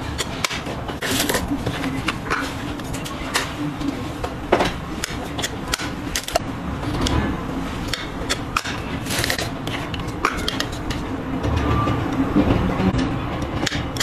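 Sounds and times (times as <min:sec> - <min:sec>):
packaging scraping and rustling: 0:00.3 - 0:04.2, 0:08.8 - 0:10.8.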